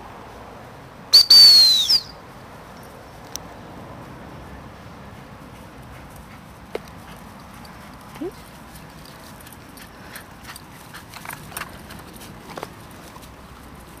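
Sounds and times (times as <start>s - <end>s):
paws running on dry grass: 5.0s - 14.0s.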